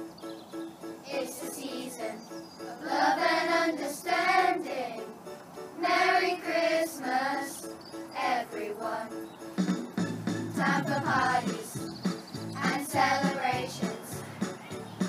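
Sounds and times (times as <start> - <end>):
children singing: 1.1 - 5.1, 5.8 - 7.6, 8.2 - 9.1, 10.6 - 11.9, 12.5 - 14.3
instrumental accompaniment: 8.8 - 15.0.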